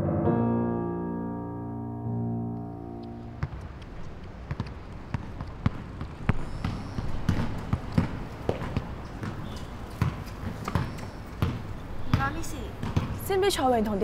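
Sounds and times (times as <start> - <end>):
basketballs bouncing on hard court: 3.4 - 14.0.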